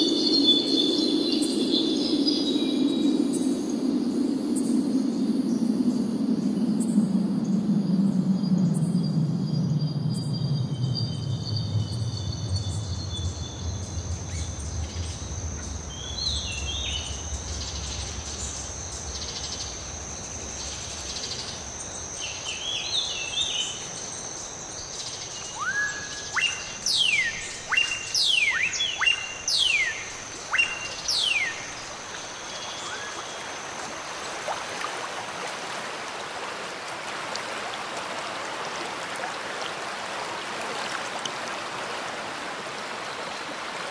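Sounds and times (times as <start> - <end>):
steady high whine: 0.0 - 34.4
low rumble: 4.0 - 22.0
rushing river water: 13.8 - 43.9
bird chirps: 25.0 - 31.9, 32.6 - 33.4
loud falling whistled bird calls: 25.1 - 33.5.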